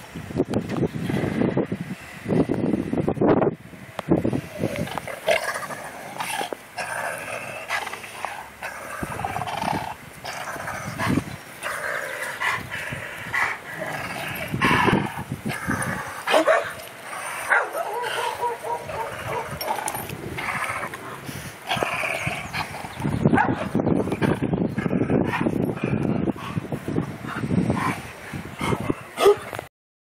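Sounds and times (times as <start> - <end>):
dogs whining and yipping: 15.6 - 20.1
dog barks: 16.3 - 16.8, 17.5 - 19.6, 23.3 - 23.7, 28.6 - 29.5.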